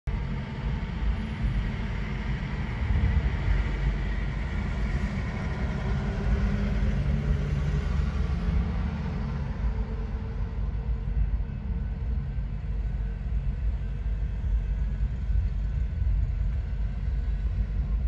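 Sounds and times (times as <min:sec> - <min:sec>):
road traffic rumble: 0:02.2 - 0:13.4.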